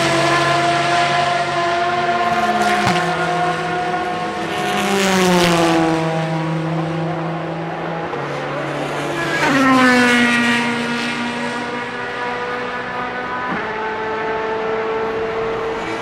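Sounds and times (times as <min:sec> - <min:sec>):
race cars driving by: 0:00.0 - 0:16.0.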